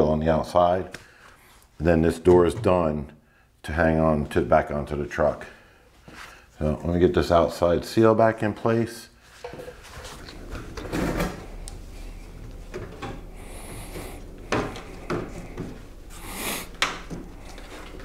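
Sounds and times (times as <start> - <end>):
knocks clicks and rubbing: 9.5 - 18.0.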